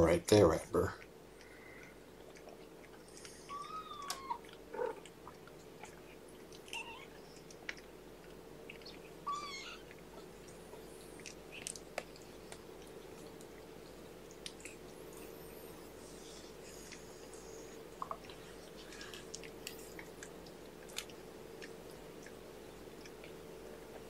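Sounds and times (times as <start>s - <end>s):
high kitten squeak: 3.5s - 4.4s, 9.2s - 9.8s
kittens suckling clicks: 9.8s - 13.6s.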